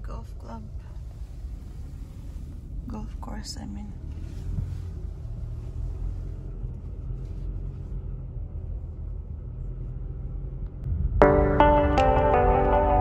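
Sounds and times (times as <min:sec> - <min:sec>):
car cabin road and engine rumble: 0:00.0 - 0:11.3.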